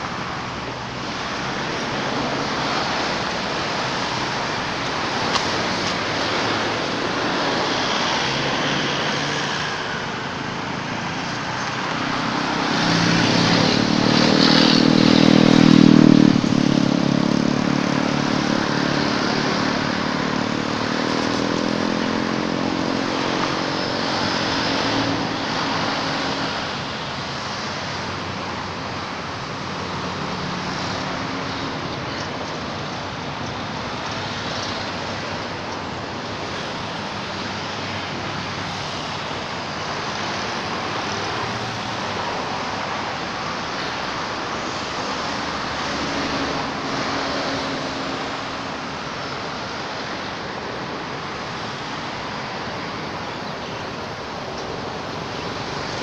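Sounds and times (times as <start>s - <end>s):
outdoor background noise: 0.0s - 56.0s
vehicle engine passing by: 11.0s - 26.9s.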